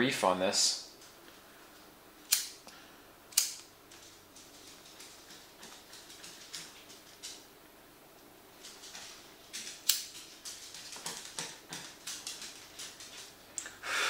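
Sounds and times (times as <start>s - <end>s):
sharp click: 2.3s - 2.6s, 3.3s - 3.7s.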